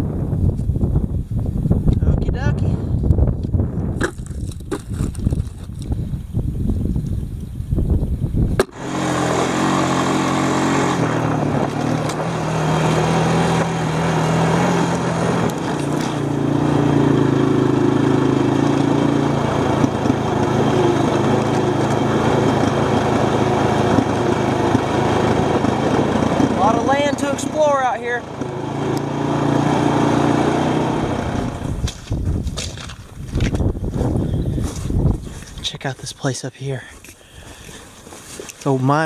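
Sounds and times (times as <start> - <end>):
stones clattering: 4.0 - 5.9
small vehicle engine running: 8.6 - 35.5.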